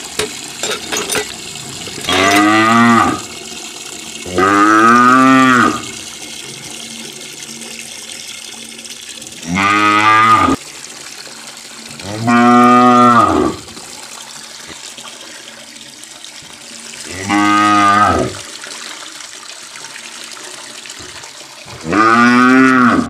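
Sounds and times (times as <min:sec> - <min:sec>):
water trickling from spout: 0:00.0 - 0:23.0
cow mooing: 0:02.1 - 0:03.3, 0:04.3 - 0:05.9, 0:09.4 - 0:10.6, 0:12.1 - 0:13.6, 0:17.1 - 0:18.4, 0:21.8 - 0:23.0.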